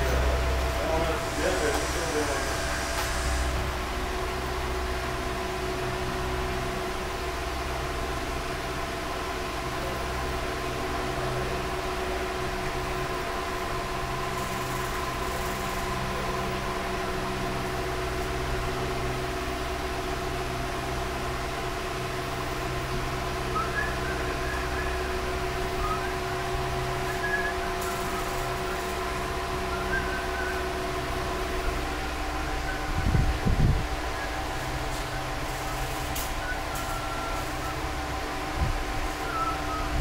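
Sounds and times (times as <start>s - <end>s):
machine hum: 0.0s - 40.0s.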